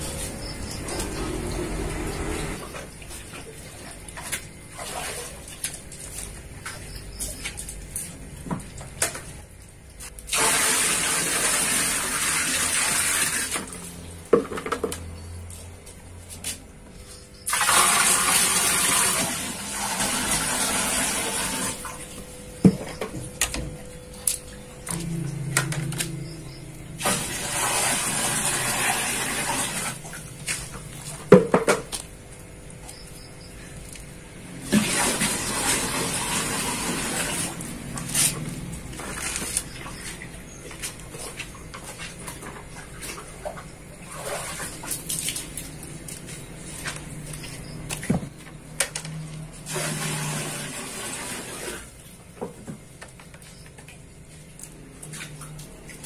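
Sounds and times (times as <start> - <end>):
water sloshing: 0.0 - 10.1, 33.6 - 48.4
water pouring into aquarium: 10.2 - 14.0, 17.4 - 22.1, 27.0 - 31.2, 34.4 - 40.2, 49.6 - 52.1
plastic bucket knocks: 31.3 - 31.9.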